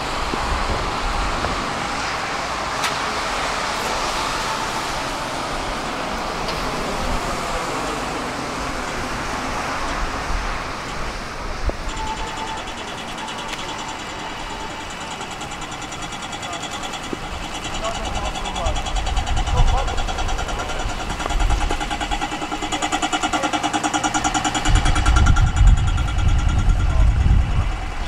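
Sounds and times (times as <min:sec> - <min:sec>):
tram rumbling along track: 0:00.0 - 0:28.0
high electronic repeating tone: 0:06.8 - 0:28.0.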